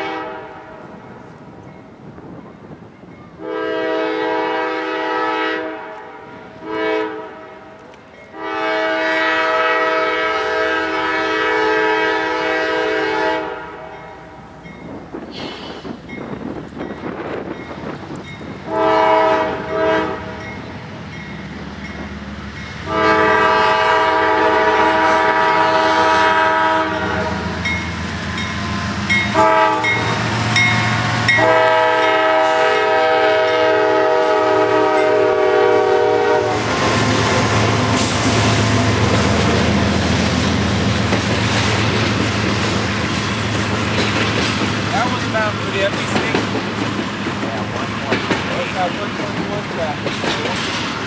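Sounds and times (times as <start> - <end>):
locomotive air horn blasts: 0.0 - 0.7, 3.4 - 14.0, 18.7 - 20.4, 22.8 - 27.6, 28.7 - 36.8
train rumbling past: 0.0 - 51.0.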